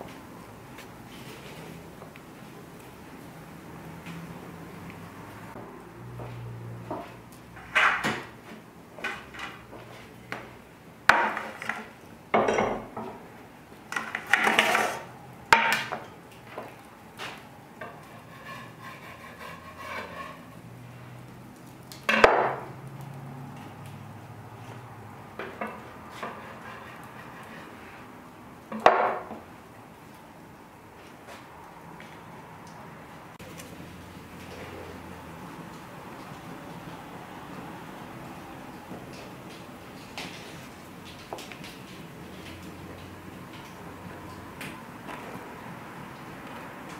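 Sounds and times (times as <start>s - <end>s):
scraping and rustling: 11.1s - 12.0s, 13.9s - 15.1s.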